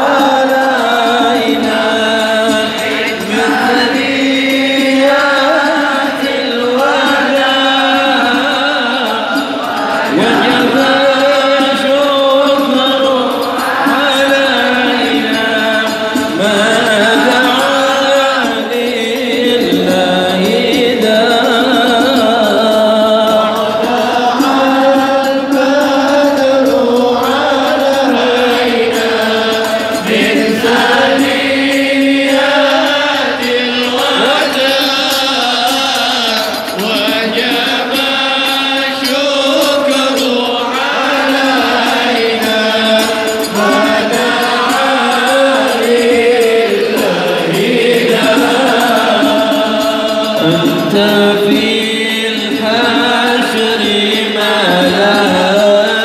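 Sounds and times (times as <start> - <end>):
voices chanting devotional song: 0.0 - 56.0.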